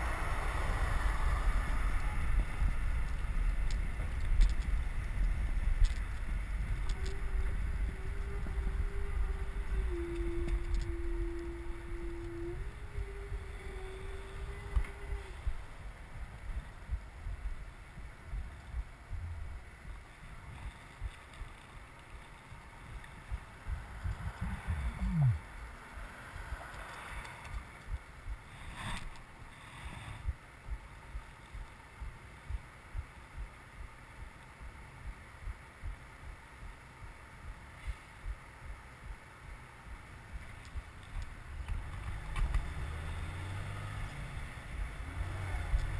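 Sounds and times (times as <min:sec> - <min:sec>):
wind buffeting microphone: 0:00.0 - 0:29.3
road and traffic rumble: 0:00.0 - 0:45.9
steady hum: 0:00.0 - 0:45.9.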